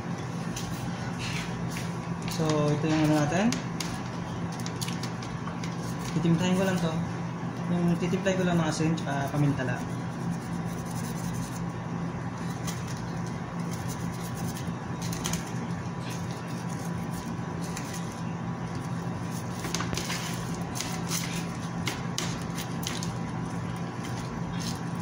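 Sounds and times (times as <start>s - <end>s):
plastic gloves crinkling: 2.2s - 7.0s.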